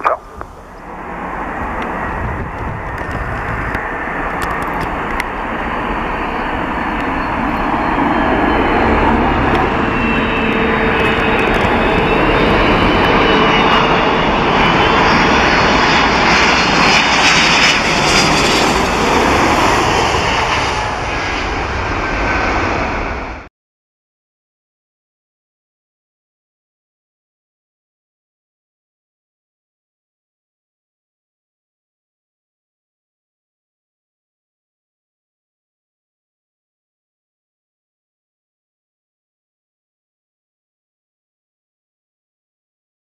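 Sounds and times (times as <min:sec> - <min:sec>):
jet plane landing overhead: 0:00.0 - 0:23.5.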